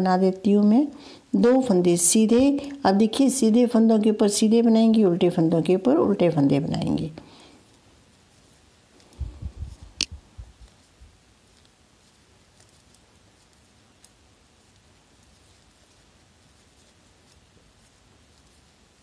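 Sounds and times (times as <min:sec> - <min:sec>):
knitting needles clicking: 0:09.0 - 0:10.9.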